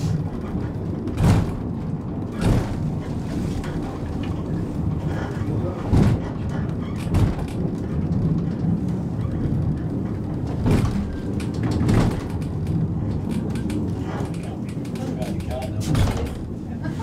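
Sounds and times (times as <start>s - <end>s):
funicular car rumbling: 0.0s - 17.0s
loud knocks: 1.0s - 3.3s, 5.8s - 8.0s, 10.4s - 12.6s.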